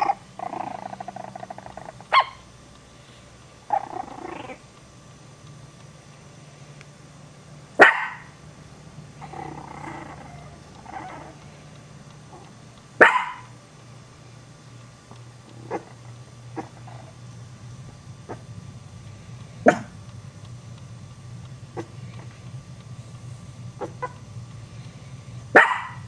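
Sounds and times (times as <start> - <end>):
puppy growling: 0.0 - 2.4, 3.7 - 4.7, 9.2 - 11.5, 12.3 - 13.4, 15.5 - 17.2, 18.2 - 18.5, 19.6 - 20.0, 21.7 - 22.3, 23.8 - 24.2
puppies barking: 0.0 - 2.5, 7.8 - 8.4, 12.3 - 13.6, 25.5 - 26.0.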